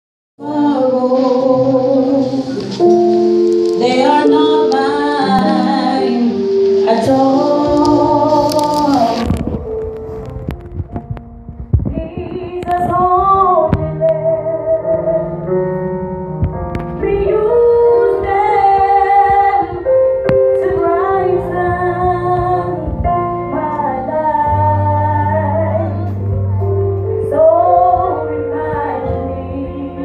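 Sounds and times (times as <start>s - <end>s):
women singing church song: 0.4s - 2.8s, 3.7s - 9.5s, 17.0s - 22.9s, 27.2s - 30.0s
instrumental accompaniment: 0.4s - 30.0s.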